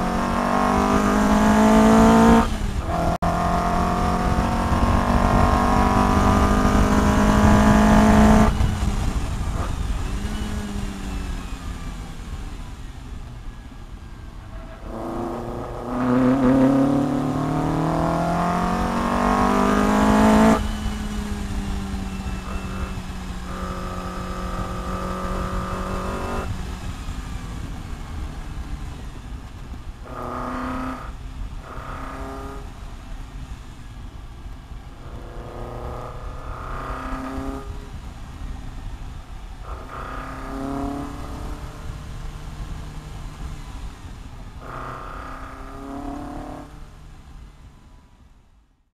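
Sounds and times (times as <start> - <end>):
sports car engine revving: 0.0 - 34.2, 34.9 - 47.7
low rumble of wind: 0.0 - 48.9.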